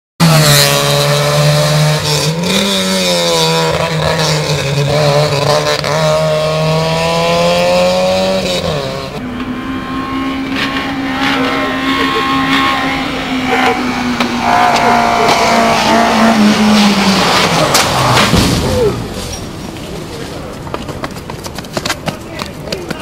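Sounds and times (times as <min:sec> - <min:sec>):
car engine revving: 0:00.2 - 0:22.0
car engine steady note: 0:09.0 - 0:20.7.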